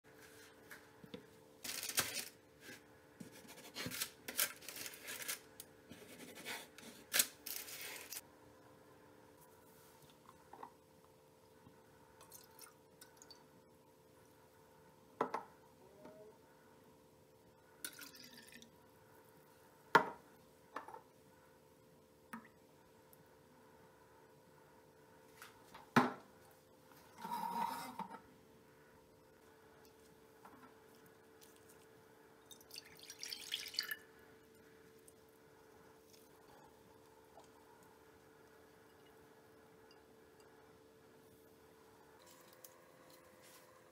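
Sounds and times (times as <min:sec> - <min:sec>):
faint steady hum: 0:00.1 - 0:43.9
parchment paper rustling: 0:01.6 - 0:08.2
spatula scraping baking tray: 0:27.2 - 0:28.1
water trickling into metal pot: 0:32.4 - 0:34.0.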